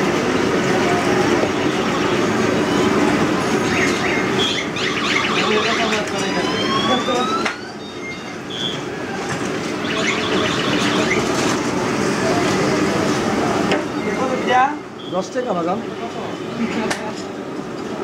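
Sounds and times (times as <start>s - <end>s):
street traffic: 0.0s - 18.0s
horn tone rising in pitch: 9.8s - 11.3s.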